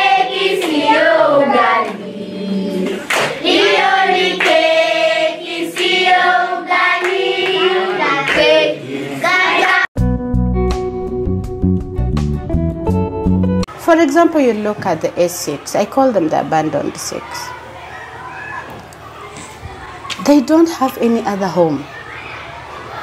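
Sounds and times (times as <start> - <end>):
children singing: 0.0 - 9.9
hand clapping: 0.6 - 0.8, 2.8 - 3.4, 4.4 - 4.7, 5.8 - 6.0, 6.9 - 8.5
guitar music: 10.0 - 13.7.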